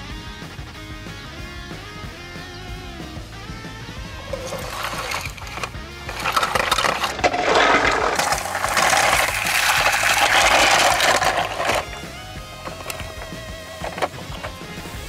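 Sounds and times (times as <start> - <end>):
toy truck rattling over leaves: 4.3 - 14.6.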